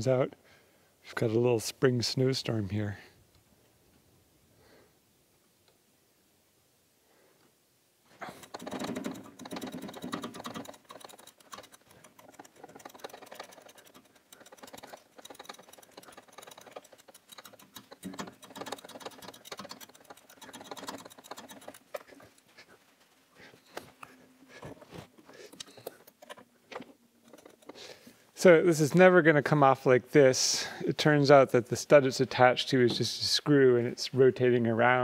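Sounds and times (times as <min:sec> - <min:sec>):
ratchet wrench clicking: 0:08.4 - 0:22.0.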